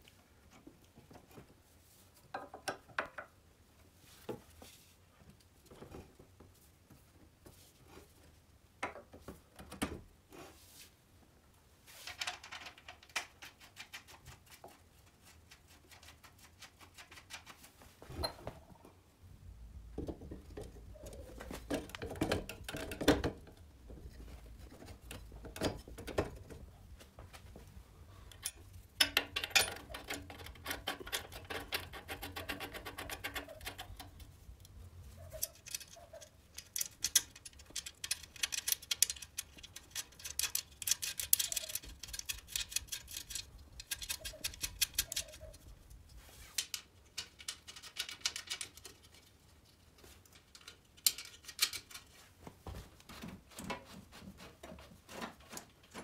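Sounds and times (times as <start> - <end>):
metal parts clicking and rattling: 28.3 - 34.3, 35.2 - 45.6, 46.6 - 52.1.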